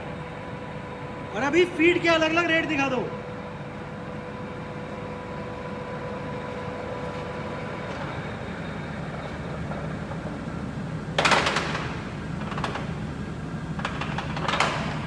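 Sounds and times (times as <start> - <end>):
lathe whine: 0.0 - 11.2
lathe motor and gearing drone: 0.0 - 15.0.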